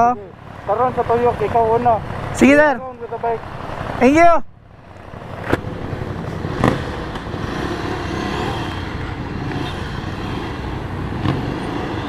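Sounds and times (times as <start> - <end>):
motorcycle engine accelerating: 4.8 - 12.0.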